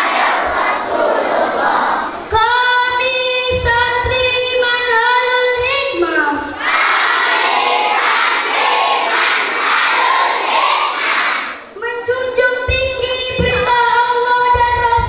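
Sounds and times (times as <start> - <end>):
girl singing a long note: 2.3 - 6.6
children shouting together: 6.5 - 11.7.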